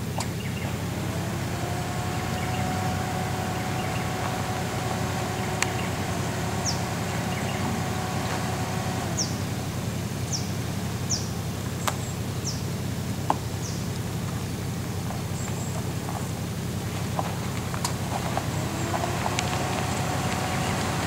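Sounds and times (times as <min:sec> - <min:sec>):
faint hum: 0:00.0 - 0:12.7
engine running low: 0:00.0 - 0:21.0.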